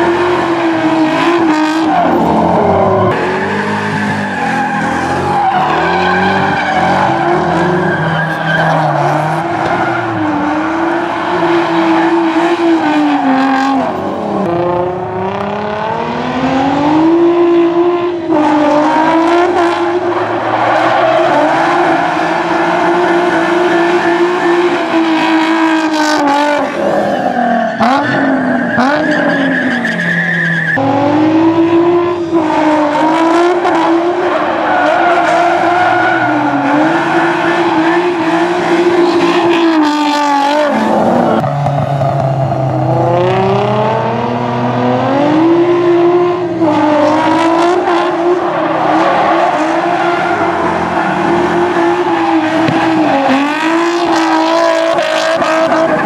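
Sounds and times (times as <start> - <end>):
car engine revving hard: 0.0 - 27.0, 30.8 - 56.0
tyres screeching: 1.6 - 14.2, 26.7 - 30.8.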